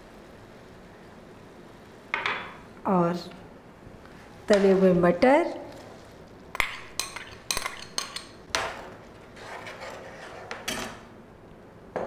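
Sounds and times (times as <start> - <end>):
ladle scraping and stirring: 6.0 - 8.4, 9.1 - 10.8.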